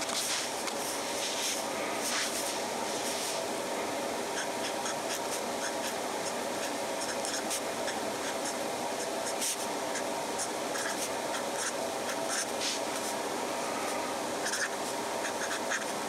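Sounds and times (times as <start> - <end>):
fountain pen scratching on paper: 4.4 - 7.6, 8.2 - 10.1, 10.7 - 13.1, 14.4 - 15.9.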